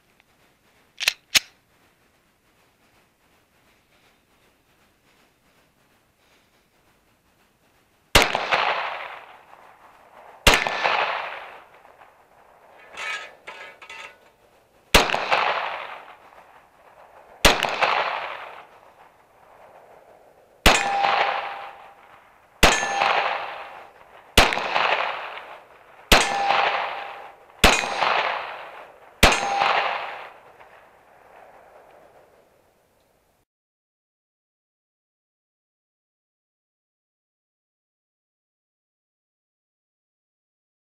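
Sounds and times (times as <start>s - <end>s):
pistol slide locking back: 1.0s - 1.6s
pistol shots echoing: 10.5s - 11.8s, 14.9s - 16.2s, 17.4s - 18.7s, 20.6s - 22.0s, 22.6s - 30.8s
steel targets ringing: 12.8s - 14.3s, 20.7s - 22.0s, 22.6s - 23.8s, 26.1s - 28.2s, 29.2s - 30.2s.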